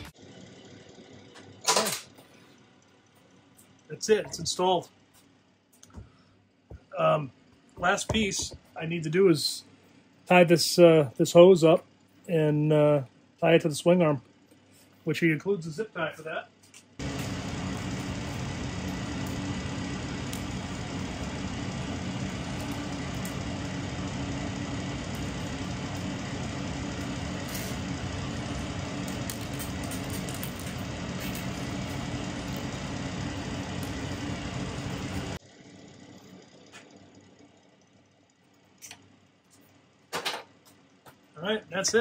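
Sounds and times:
motor humming: 17.0s - 39.0s.

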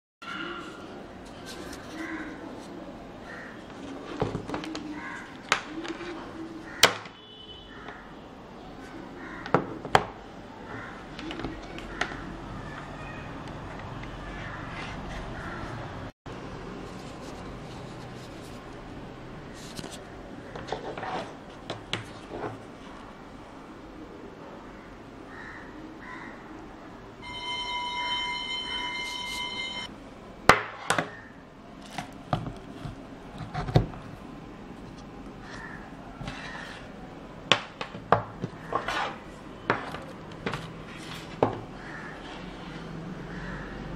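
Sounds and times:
high-pitched tone: 27.2s - 29.9s.

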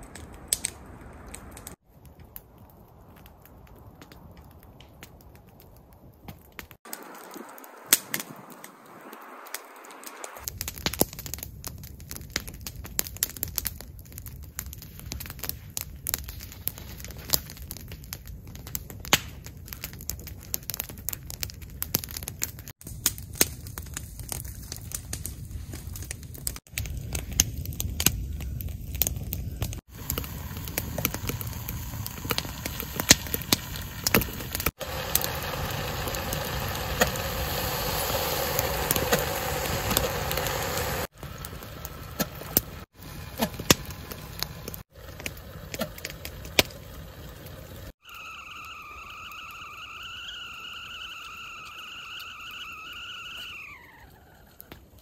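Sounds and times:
campfire crackling and popping: 0.0s - 55.0s
kettle stove flames rushing: 6.8s - 10.5s, 28.0s - 54.7s.

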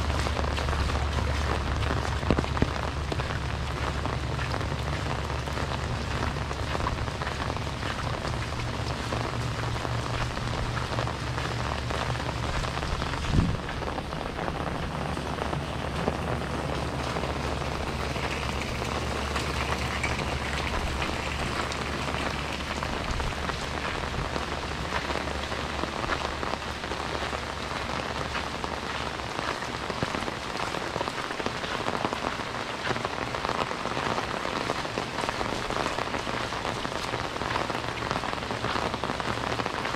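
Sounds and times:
low steady hum: 0.0s - 29.2s
steady rain pattering: 0.0s - 39.9s.

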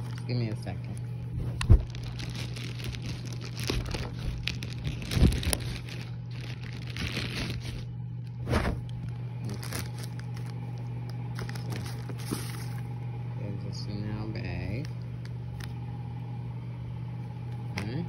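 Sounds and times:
plastic packaging crinkling: 0.0s - 1.0s, 1.6s - 12.9s
steady low hum: 0.0s - 18.0s.

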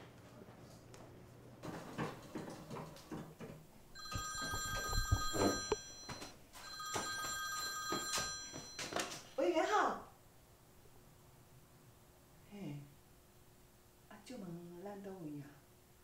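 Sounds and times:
landline telephone ringing: 4.0s - 9.3s.

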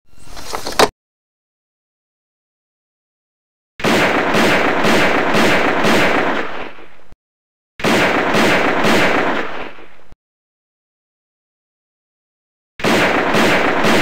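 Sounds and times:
gunfire bursts: 3.8s - 6.9s, 7.8s - 10.1s, 12.8s - 14.0s.

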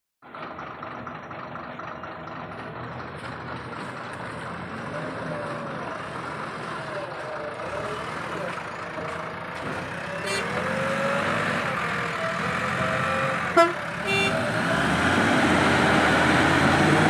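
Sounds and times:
heavy diesel engines running: 0.2s - 17.0s.

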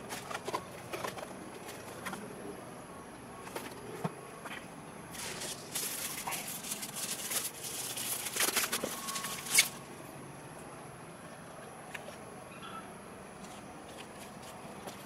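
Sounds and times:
paper wrapping crinkling: 5.1s - 9.8s.

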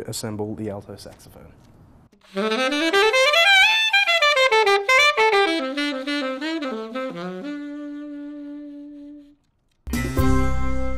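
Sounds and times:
alto saxophone solo: 2.2s - 9.5s.

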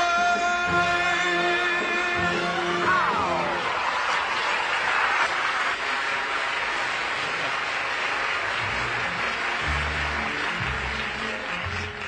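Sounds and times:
big band orchestra playing: 0.0s - 3.9s
audience applauding: 2.1s - 12.0s.

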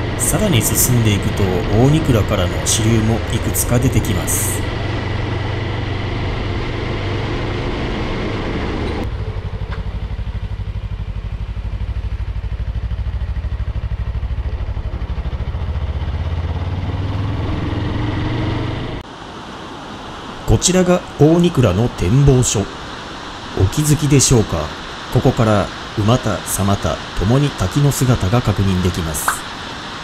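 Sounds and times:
vehicle engine throbbing: 0.0s - 19.0s
rushing hiss: 19.1s - 30.0s.

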